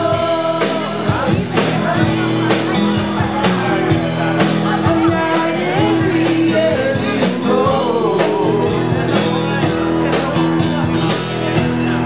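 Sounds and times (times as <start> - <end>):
person singing: 0.0 - 2.6, 4.6 - 9.3
drums beating: 0.0 - 12.0
rock band playing: 0.0 - 12.0.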